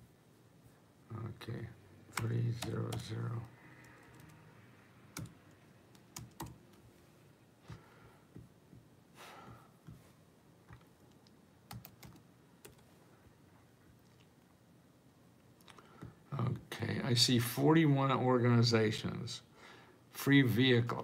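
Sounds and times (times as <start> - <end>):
computer keyboard typing: 2.1 - 4.4, 5.1 - 6.8, 10.7 - 12.9.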